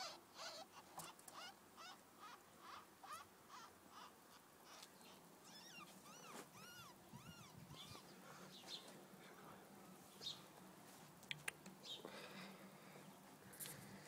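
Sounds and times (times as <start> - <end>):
ferret kits squeaking: 0.0 - 8.1.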